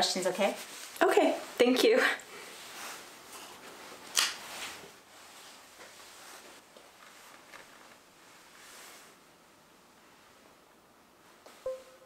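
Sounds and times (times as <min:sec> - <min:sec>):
faint rustling and handling: 0:00.0 - 0:09.3.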